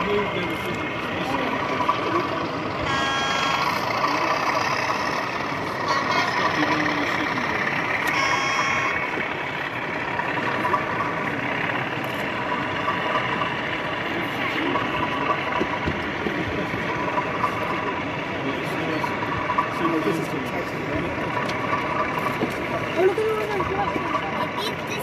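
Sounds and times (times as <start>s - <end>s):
hubbub of voices: 0.0s - 25.0s
short steady chord tones: 1.6s - 14.2s.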